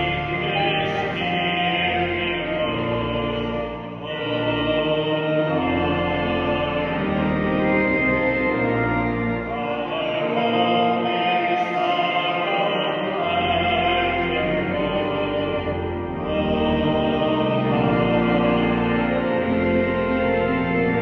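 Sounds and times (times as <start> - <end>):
person singing: 0.0 - 7.4, 9.5 - 20.4
church organ playing hymn chords: 0.0 - 21.0.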